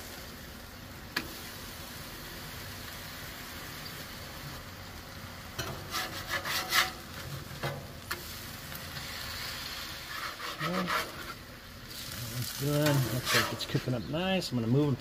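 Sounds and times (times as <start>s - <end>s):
sausage patties sizzling on griddle: 0.0s - 14.2s
metal spatula scraping griddle: 5.6s - 8.3s, 8.9s - 12.1s, 12.8s - 14.0s.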